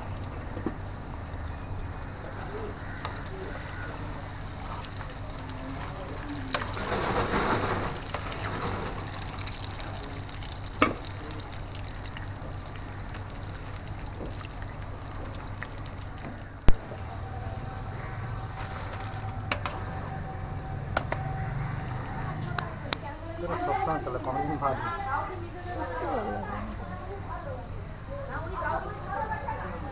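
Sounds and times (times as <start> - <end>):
fritters deep-frying in oil: 2.2 - 19.9.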